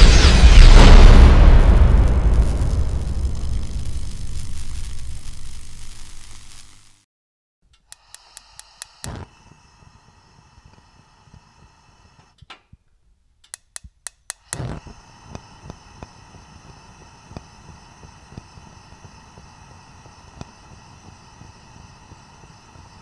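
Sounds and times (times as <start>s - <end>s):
gas burner hissing: 0.8s - 7.1s, 7.8s - 12.7s, 13.5s - 23.0s
stove igniter clicking: 7.7s - 12.8s, 13.4s - 22.2s.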